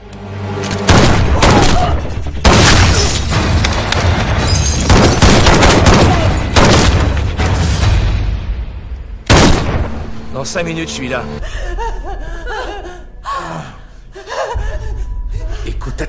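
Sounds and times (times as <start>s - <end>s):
soundtrack music: 0.0s - 16.0s
gunfire bursts: 4.8s - 7.2s, 9.3s - 10.0s.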